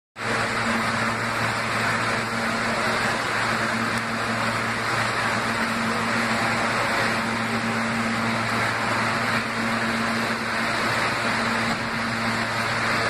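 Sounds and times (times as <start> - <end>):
constant low drone: 0.2 - 13.0
subway car hum and air rush: 0.2 - 13.0.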